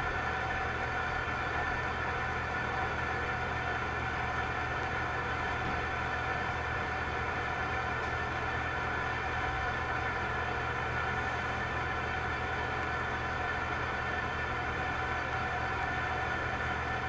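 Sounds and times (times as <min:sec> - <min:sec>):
steady mechanical hum: 0:00.0 - 0:17.0.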